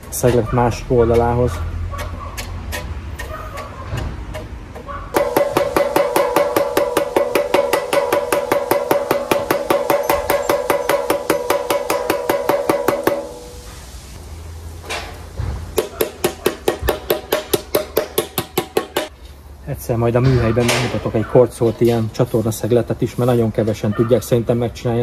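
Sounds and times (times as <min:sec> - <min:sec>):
hammer tapping on sheet metal: 0:05.1 - 0:13.5, 0:15.8 - 0:19.1.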